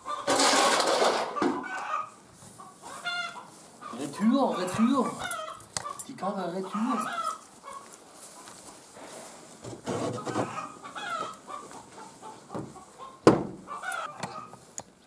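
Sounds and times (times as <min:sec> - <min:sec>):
chickens clucking: 0:00.0 - 0:15.0
wooden door banging shut: 0:12.6 - 0:13.6.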